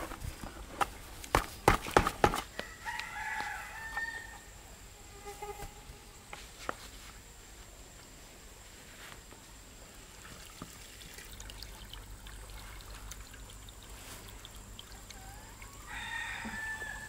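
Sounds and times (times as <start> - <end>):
rooster crowing: 2.5 - 4.6, 15.2 - 17.0.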